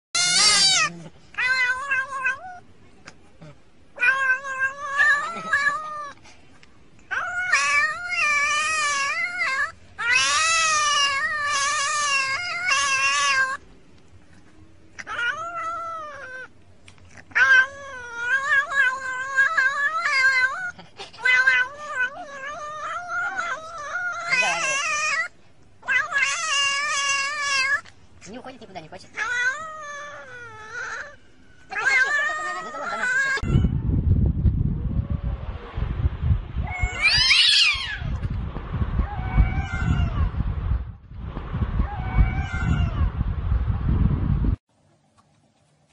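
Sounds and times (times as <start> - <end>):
cat yowling: 0.2 - 2.6, 4.0 - 6.2, 7.1 - 13.6, 15.0 - 16.5, 17.3 - 27.9, 29.1 - 33.8, 36.6 - 38.2, 39.0 - 40.4, 41.8 - 43.1.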